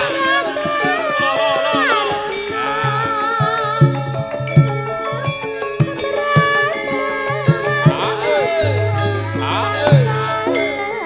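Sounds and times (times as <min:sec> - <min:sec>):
hand drum strokes: 0:00.0 - 0:11.0
metallophone tones: 0:00.0 - 0:11.0
wavering gliding melody: 0:00.0 - 0:11.0.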